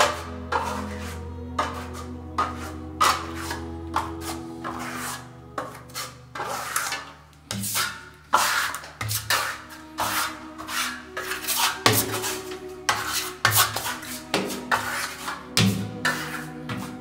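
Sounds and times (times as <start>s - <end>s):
applicator rubbing across wall: 0.0s - 17.0s
quiet background music: 0.0s - 17.0s.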